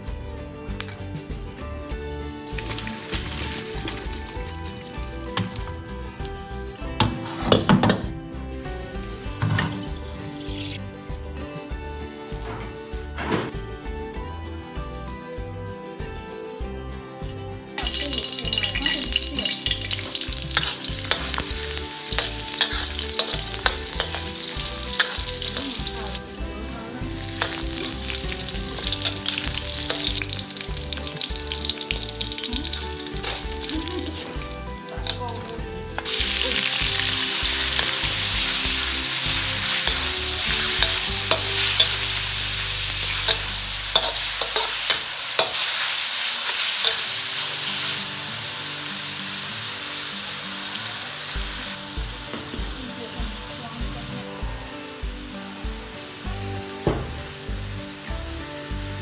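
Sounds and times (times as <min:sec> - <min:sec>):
sizzling in hot oil: 0:02.3 - 0:11.1, 0:17.7 - 0:59.0
metal ladle scraping a wok: 0:17.8 - 0:26.3, 0:27.2 - 0:33.7, 0:36.0 - 0:48.0.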